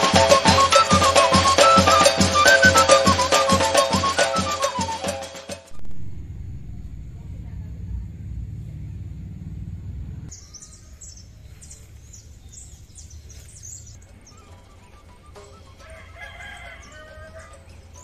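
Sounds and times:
low rumble: 0:05.7 - 0:10.3
small birds chirping: 0:06.7 - 0:18.0
rooster crowing: 0:15.6 - 0:18.0.

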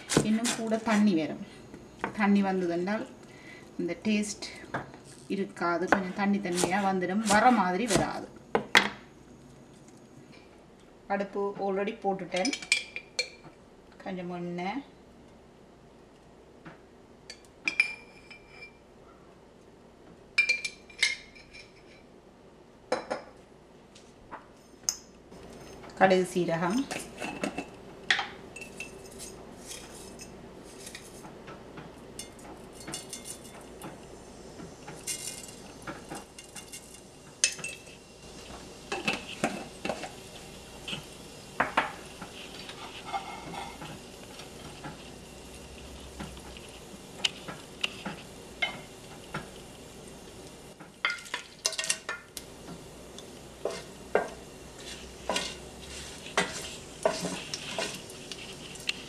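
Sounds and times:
faint sizzle: 0:00.0 - 0:15.2, 0:25.4 - 0:59.0
wooden spoon stirring in pan: 0:34.9 - 0:49.7, 0:51.0 - 0:59.0
spoon clinking on jar and pan: 0:51.0 - 0:52.2.

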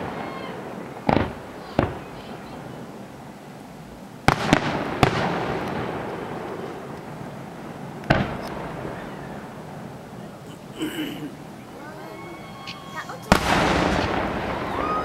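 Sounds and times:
fireworks bursting: 0:00.0 - 0:15.0
fireworks rumble: 0:00.0 - 0:15.0.

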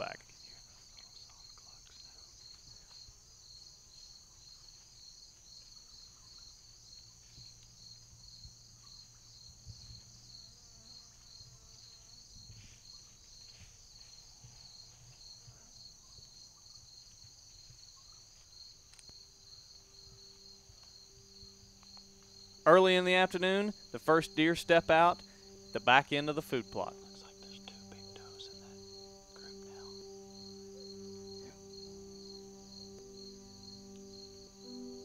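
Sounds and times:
insect chorus trilling: 0:00.0 - 0:35.0.

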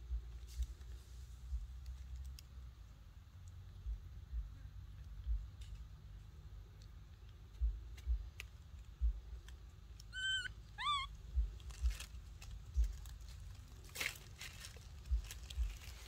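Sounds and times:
dull low thumps: 0:00.0 - 0:00.8, 0:01.4 - 0:01.9, 0:03.8 - 0:05.6, 0:07.5 - 0:09.5, 0:10.1 - 0:13.3, 0:15.0 - 0:16.0
baby monkey squeaky calls: 0:10.0 - 0:11.2
dry leaves crackling: 0:10.8 - 0:16.0.

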